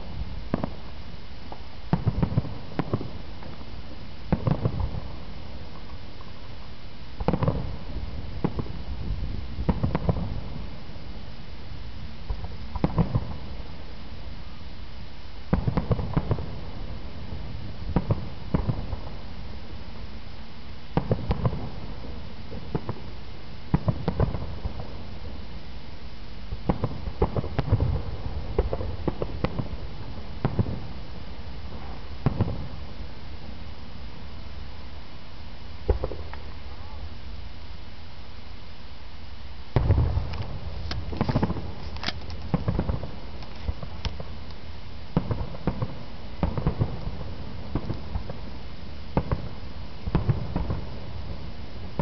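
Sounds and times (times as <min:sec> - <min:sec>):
background hiss: 0:00.0 - 0:52.0
distant firework booms: 0:39.7 - 0:41.8, 0:42.5 - 0:44.3, 0:45.2 - 0:48.5.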